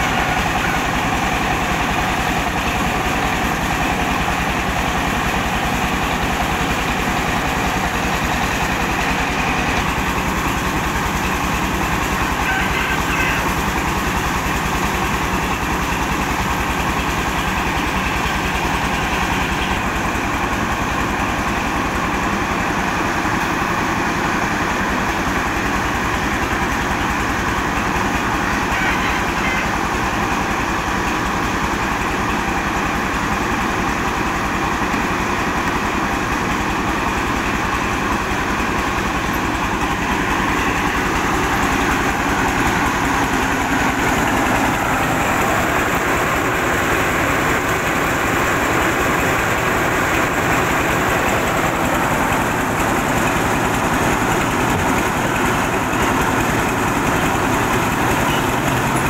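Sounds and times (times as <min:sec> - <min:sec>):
diesel engine beat: 0:00.0 - 0:59.0.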